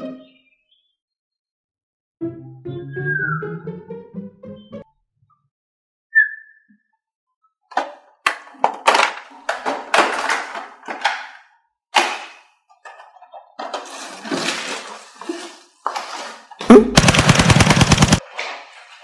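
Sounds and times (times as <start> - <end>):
plastic toys clattering: 7.7 - 16.6
toy blaster rapid firing: 17.0 - 18.2.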